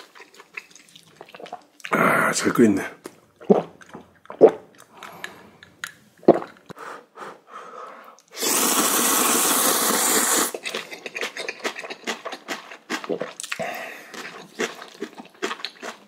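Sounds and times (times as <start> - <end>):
wet chewing: 0.0 - 1.9, 10.5 - 16.0
person gulping water: 0.1 - 2.3, 3.4 - 6.8, 10.5 - 15.5
loud noodle slurp: 8.3 - 13.4.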